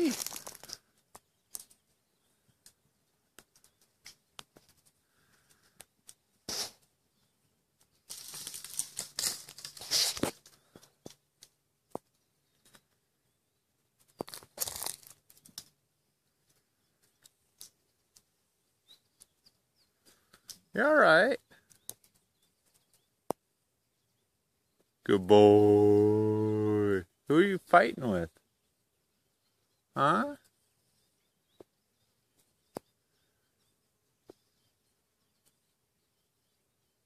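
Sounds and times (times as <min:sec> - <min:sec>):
twigs snapping and clicking: 0:00.0 - 0:01.8, 0:02.6 - 0:06.2, 0:07.8 - 0:12.8, 0:14.1 - 0:15.7, 0:20.3 - 0:20.7, 0:21.6 - 0:23.4
dry brush and leaves rustling: 0:00.0 - 0:01.9, 0:07.8 - 0:11.1, 0:14.0 - 0:15.7.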